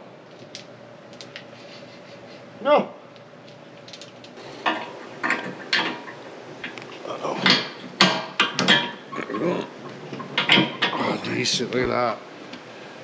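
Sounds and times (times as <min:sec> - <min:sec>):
metal knocks and clanks: 0:04.7 - 0:06.8, 0:07.4 - 0:09.0, 0:10.1 - 0:11.0.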